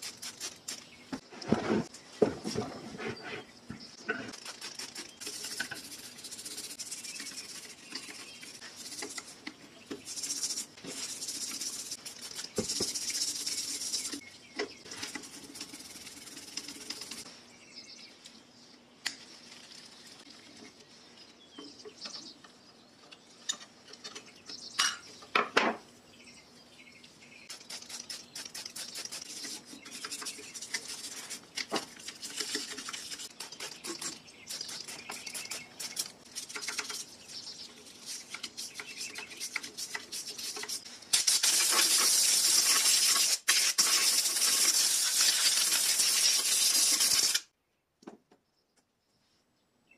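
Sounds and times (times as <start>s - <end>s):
rubbing noise: 10.0s - 14.2s.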